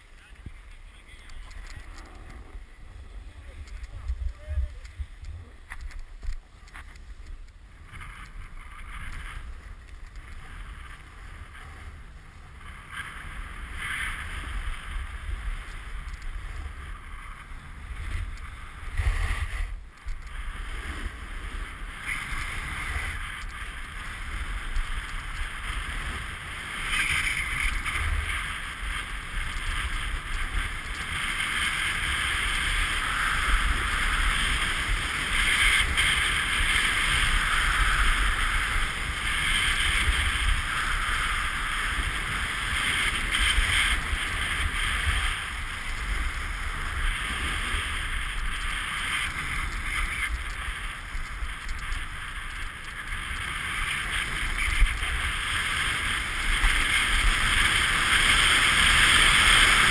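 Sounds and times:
wind buffeting microphone: 0.0 - 59.9
snowboard scraping on snow: 12.6 - 19.8.

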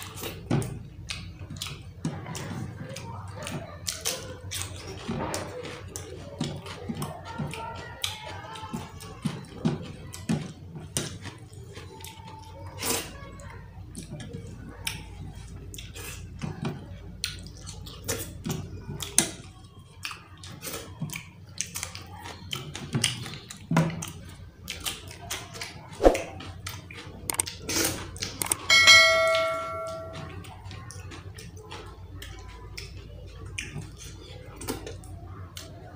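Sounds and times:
person chewing: 20.0 - 28.6
bell-like ringing tone: 28.6 - 30.4.

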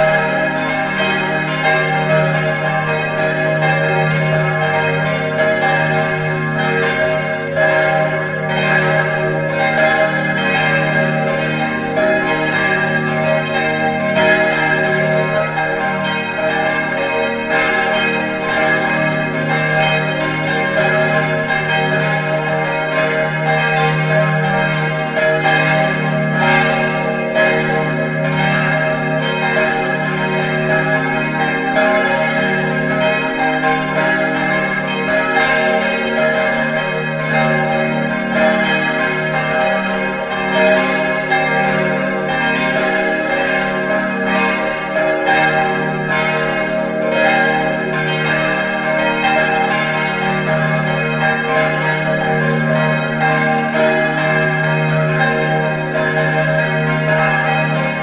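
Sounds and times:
church bells ringing together: 0.0 - 58.0.

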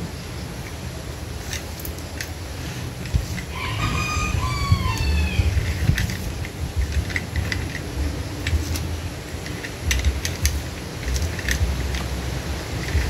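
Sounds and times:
pulley blocks clicking and rattling: 0.6 - 13.0
rope pulled through pulley: 1.4 - 13.0.

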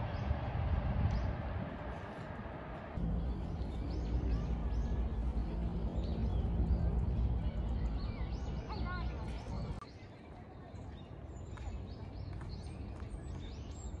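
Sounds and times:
low outdoor rumble: 0.0 - 9.8
small birds chirping: 3.0 - 14.0.

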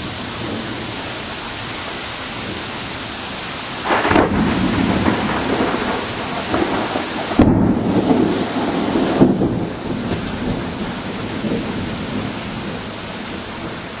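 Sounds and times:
steady rain: 0.0 - 14.0
thunder cracks and rumble: 3.8 - 13.9.

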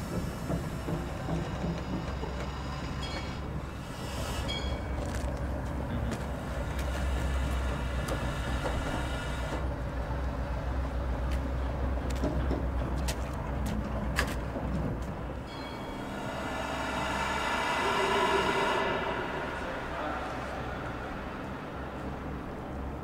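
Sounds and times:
wheels clicking and knocking on track: 0.0 - 3.6
diesel locomotive engine running: 0.0 - 23.0
high wheel squeals: 1.6 - 5.2, 15.5 - 22.1.

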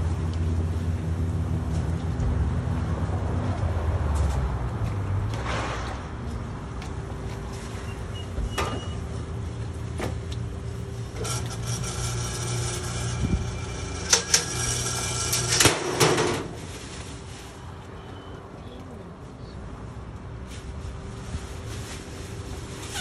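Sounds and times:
rotating drum low hum: 6.2 - 17.2
metallic squealing and clanks: 7.6 - 9.2, 11.1 - 16.6, 22.8 - 23.0.

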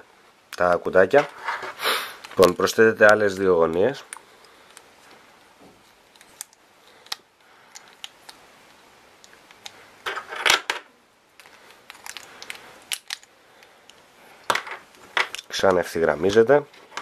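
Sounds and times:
clatter of plastic pieces: 10.0 - 13.3
plastic puzzle pieces clicking: 11.4 - 13.3.

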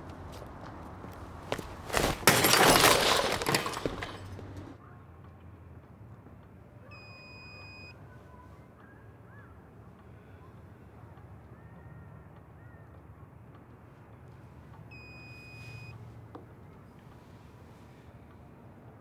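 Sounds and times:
crash of smashing and shattering: 1.9 - 4.4
short electronic beep: 14.9 - 15.9.

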